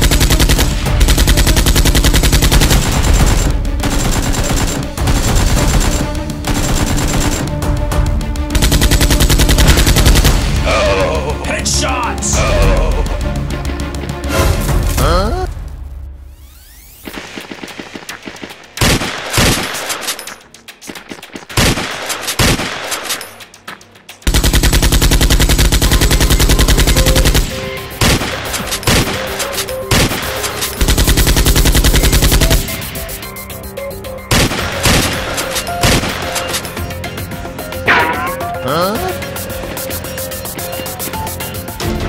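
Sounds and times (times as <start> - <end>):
automatic gunfire bursts: 0.0 - 7.6, 8.6 - 10.4, 17.0 - 23.2, 24.3 - 32.7
single gunshots: 37.9 - 38.6.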